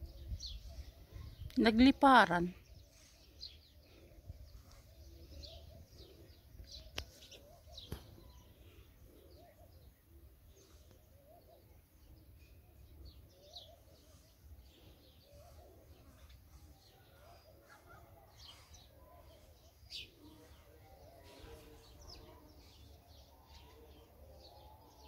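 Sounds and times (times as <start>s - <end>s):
small birds chirping: 0.0s - 25.0s.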